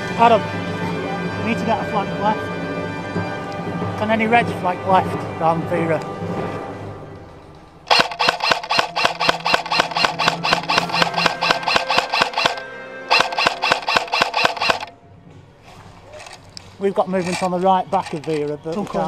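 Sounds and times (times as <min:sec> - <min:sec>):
airsoft gun rapid firing: 0:07.9 - 0:14.9.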